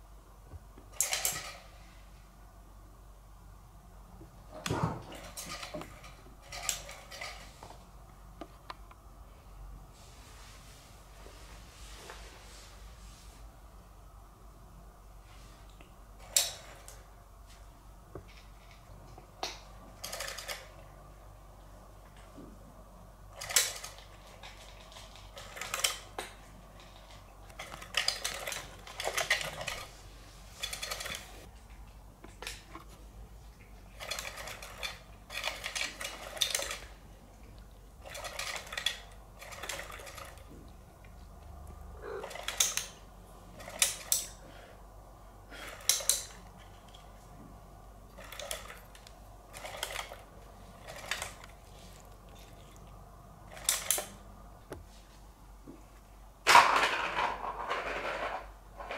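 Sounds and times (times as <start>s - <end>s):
cat toy mechanical rattling: 0.9s - 2.0s, 4.8s - 7.6s, 19.8s - 20.9s, 23.3s - 31.5s, 33.9s - 37.0s, 37.9s - 40.6s, 41.8s - 44.5s, 45.5s - 47.2s, 48.1s - 52.8s, 53.4s - 54.2s.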